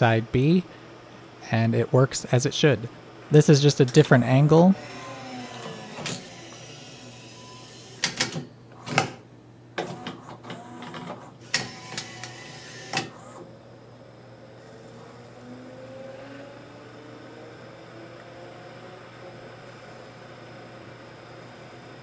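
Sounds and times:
motor whirring: 0:04.8 - 0:08.0, 0:11.4 - 0:13.4
sharp mechanical clicks and clacks: 0:08.0 - 0:09.2.

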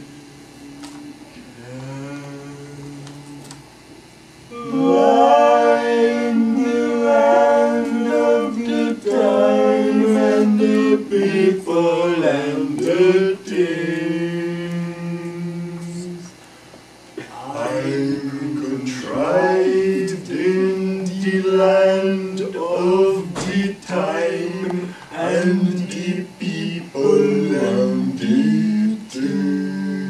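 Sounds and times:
voices singing held notes: 0:04.5 - 0:16.4, 0:17.2 - 0:30.0.

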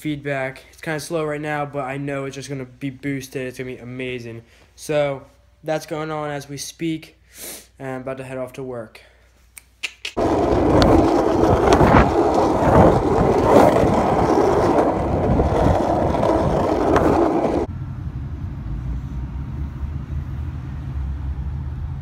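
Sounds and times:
skateboard wheels rolling on asphalt: 0:10.2 - 0:17.7
low rumble: 0:10.2 - 0:22.0.

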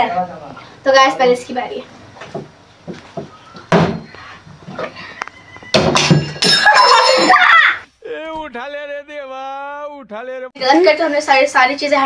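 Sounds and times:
plastic bottle landing on table: 0:03.2 - 0:04.1
loud voices: 0:06.6 - 0:10.9.

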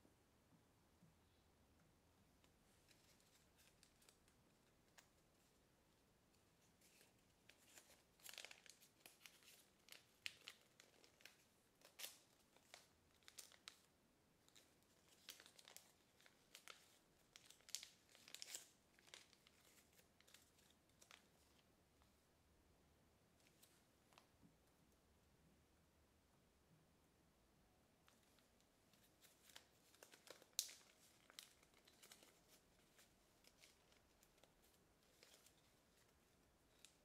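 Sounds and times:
paper crinkling and crackling: 0:02.4 - 0:05.6, 0:06.3 - 0:21.7, 0:23.4 - 0:24.3, 0:28.0 - 0:37.0.

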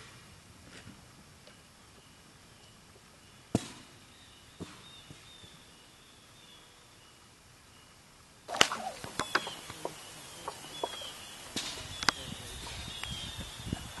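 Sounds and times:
faint chirps: 0:04.1 - 0:14.0
catapult firing crack: 0:08.5 - 0:09.6
rustling: 0:08.5 - 0:13.2.

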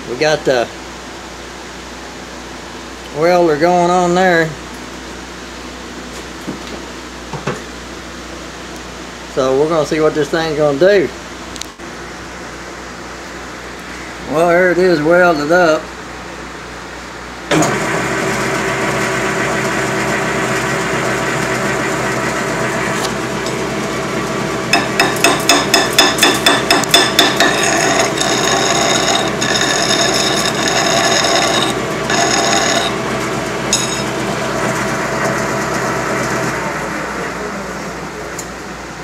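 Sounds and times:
metal lathe running: 0:17.5 - 0:38.2
high ringing squeal of tool: 0:27.2 - 0:33.0, 0:33.7 - 0:34.1.

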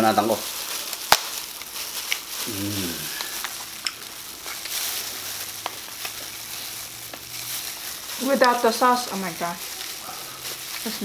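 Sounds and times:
steady hiss: 0:00.0 - 0:11.0
person humming mm: 0:02.4 - 0:03.4.

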